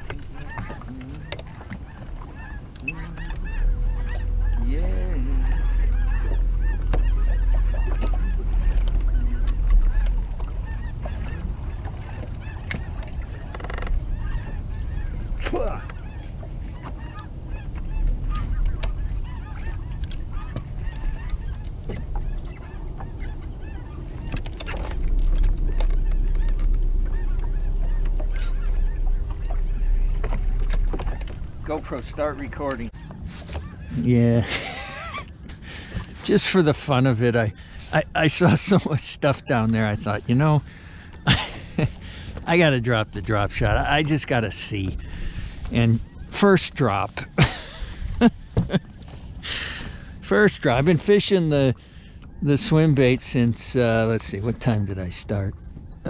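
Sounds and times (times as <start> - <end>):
flock of birds calling: 0.0 - 34.0
wind rumbling on microphone: 0.0 - 36.2, 39.6 - 46.4.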